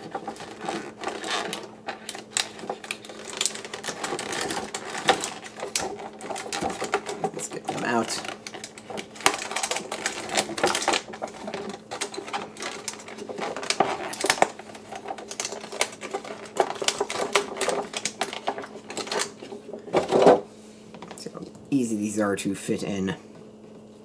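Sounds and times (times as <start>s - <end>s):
plastic blister tray crinkling: 0.0s - 20.4s.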